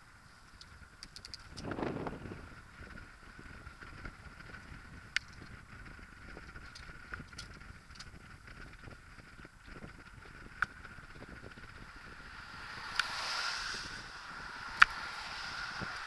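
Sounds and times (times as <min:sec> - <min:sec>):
low rumble of bicycle ride: 0:00.0 - 0:16.0
bicycle clicks and knocks: 0:00.5 - 0:01.7, 0:02.8 - 0:12.1
passing car tyre noise: 0:00.7 - 0:16.0
wind buffeting microphone: 0:00.7 - 0:16.0.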